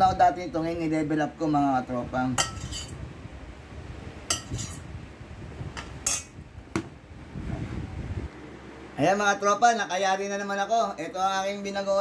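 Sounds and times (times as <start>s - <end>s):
metal utensil clinking on plate: 2.4s - 2.9s, 4.3s - 4.8s, 6.0s - 6.3s.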